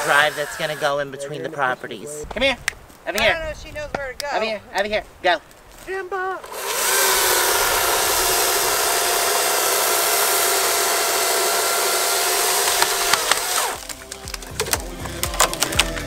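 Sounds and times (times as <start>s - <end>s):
chainsaw cutting wood: 0.0s - 1.2s, 6.4s - 16.0s
tree cracking and snapping: 5.4s - 16.0s.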